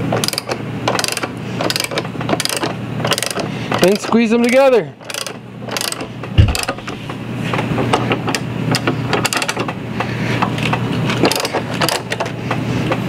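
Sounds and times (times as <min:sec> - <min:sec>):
ratcheting vise clicking: 0:00.1 - 0:09.8, 0:10.5 - 0:12.4
steady low hum: 0:04.9 - 0:13.0.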